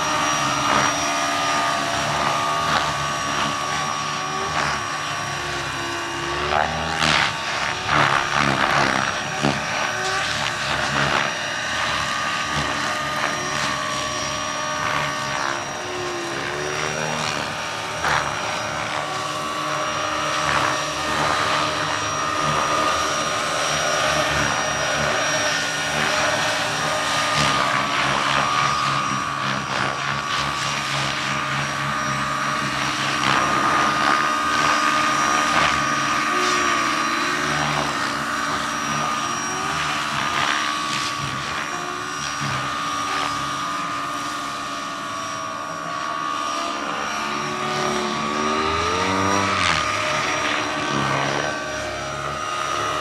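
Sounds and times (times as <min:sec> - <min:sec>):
low rotor hum: 0:00.0 - 0:53.0
model helicopter whine: 0:00.0 - 0:53.0.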